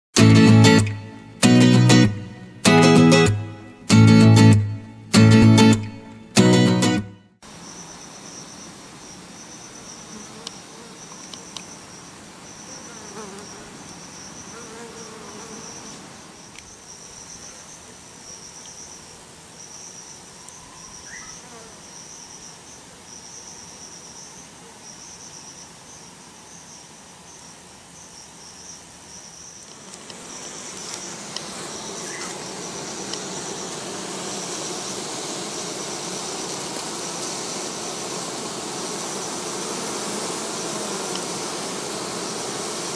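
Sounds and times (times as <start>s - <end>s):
high pulsing insect chirp: 7.4s - 42.9s
honeybees buzzing: 7.5s - 16.6s, 29.6s - 42.9s.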